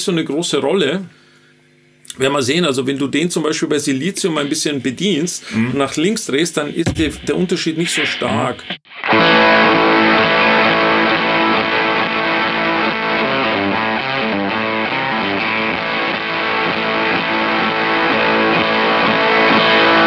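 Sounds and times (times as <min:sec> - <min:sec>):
fuzz electric guitar: 0:08.9 - 0:20.0.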